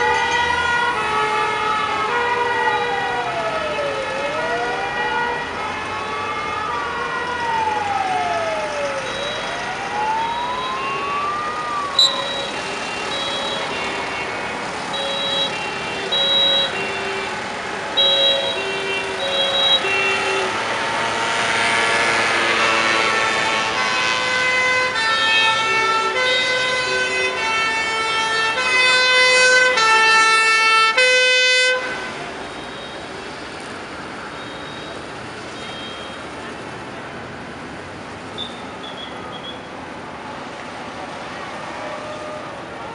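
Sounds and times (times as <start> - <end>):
wailing siren: 0.0 - 14.1, 14.7 - 32.4.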